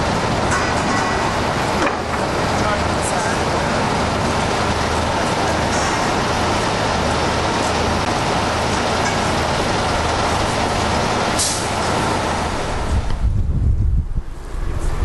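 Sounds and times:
city road traffic: 0:00.0 - 0:15.0
wind buffeting microphone: 0:09.4 - 0:15.0.

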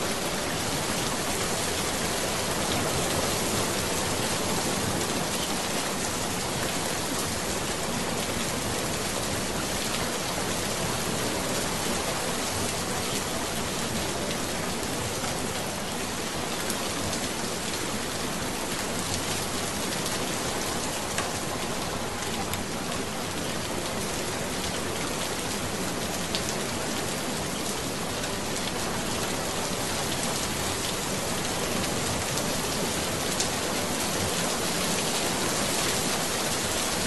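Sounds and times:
rain-like hiss: 0:00.0 - 0:37.0.

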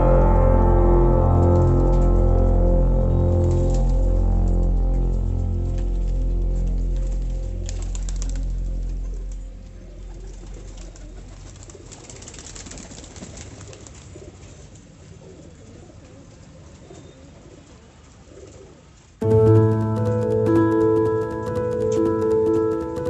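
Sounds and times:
background music: 0:00.0 - 0:11.2, 0:19.2 - 0:23.0.

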